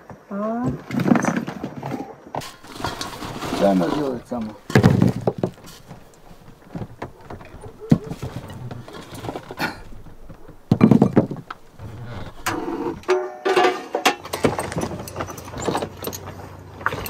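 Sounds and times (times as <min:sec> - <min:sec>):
dishes clinking and knocking: 0:02.4 - 0:11.8, 0:12.4 - 0:16.2.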